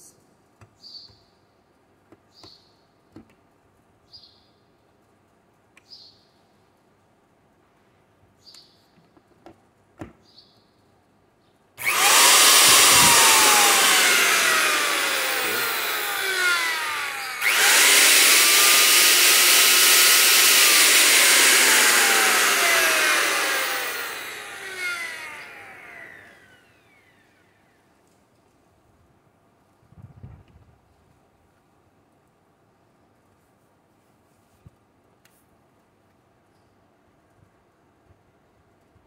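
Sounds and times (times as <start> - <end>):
electric router whining: 11.8 - 27.3.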